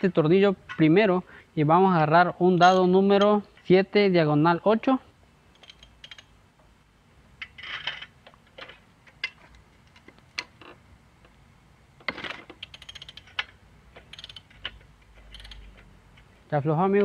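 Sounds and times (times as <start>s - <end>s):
ratchet wrench clicking: 12.6s - 15.8s.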